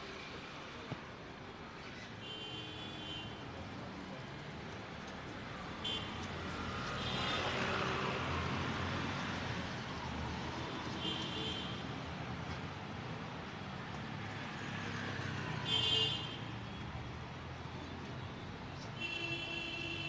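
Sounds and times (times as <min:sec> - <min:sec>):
cars passing: 0:04.1 - 0:11.1, 0:12.0 - 0:16.1.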